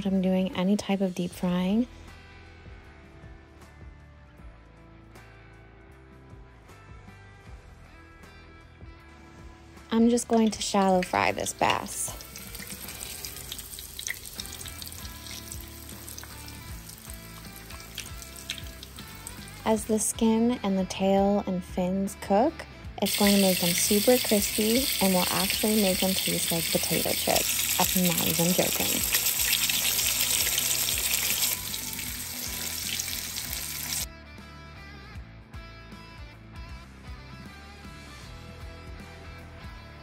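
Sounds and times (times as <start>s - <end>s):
background music: 0.0s - 40.0s
fish sizzling in oil: 10.4s - 19.6s, 23.1s - 34.1s.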